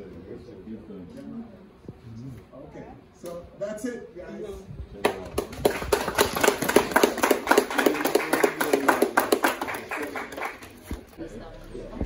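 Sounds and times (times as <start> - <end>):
people applauding: 5.0 - 10.9.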